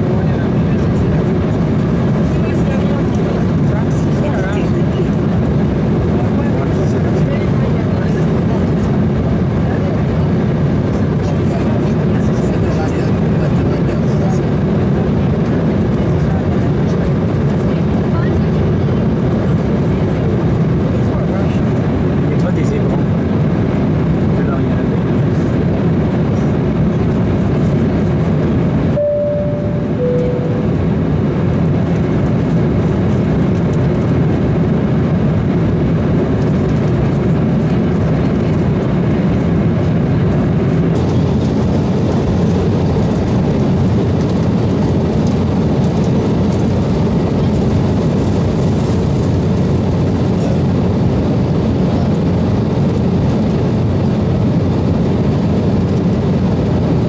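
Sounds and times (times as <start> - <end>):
jet engine and rushing air: 25.0 - 33.6
two-note cabin chime: 29.0 - 31.0.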